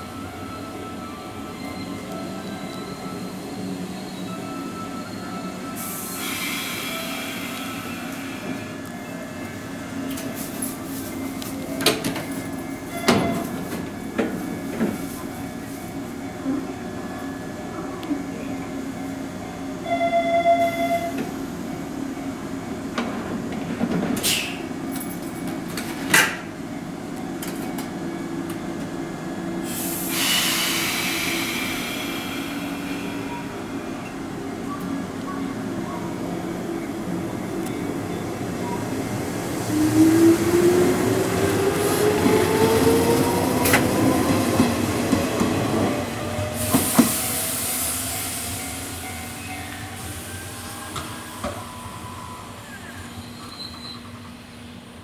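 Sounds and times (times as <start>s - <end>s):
air hiss: 29.6s - 33.3s.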